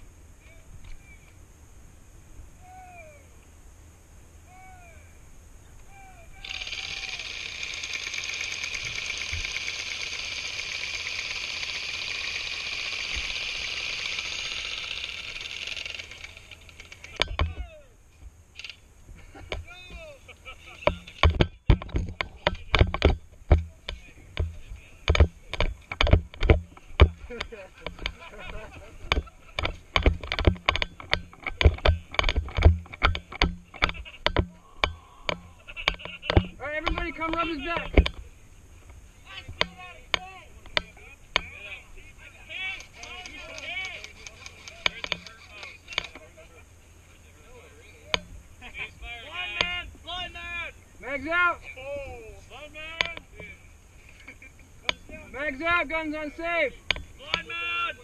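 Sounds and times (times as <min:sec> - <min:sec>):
airsoft guns firing full-auto: 0:06.4 - 0:16.9
gear rattling and knocking: 0:20.8 - 0:38.2.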